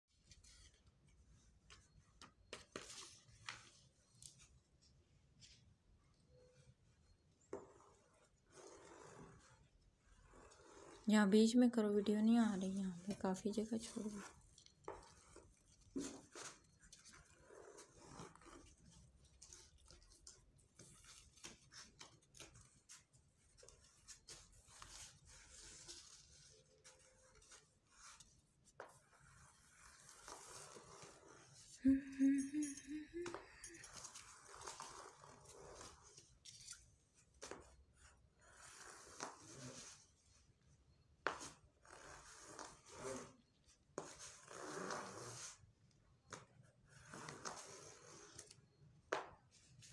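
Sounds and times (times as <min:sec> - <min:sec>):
paper being folded and creased: 0:13.8 - 0:30.0, 0:34.0 - 0:36.9.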